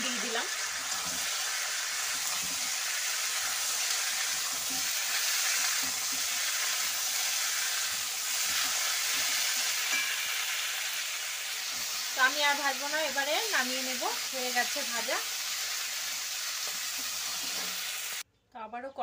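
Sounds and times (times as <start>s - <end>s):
vegetables sizzling in oil: 0.0s - 18.2s
metal spatula stirring: 0.6s - 10.9s.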